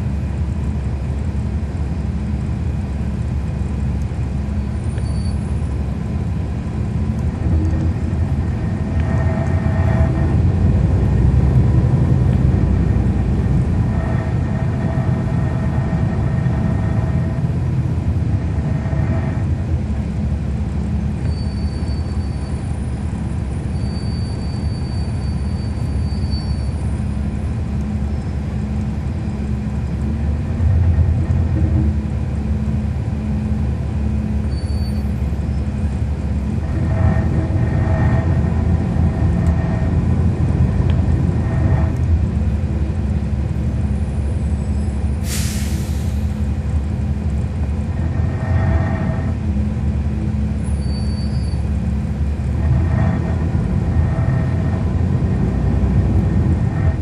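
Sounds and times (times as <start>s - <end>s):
bus diesel engine running: 0.0s - 57.0s
sharp air hiss: 45.2s - 46.4s.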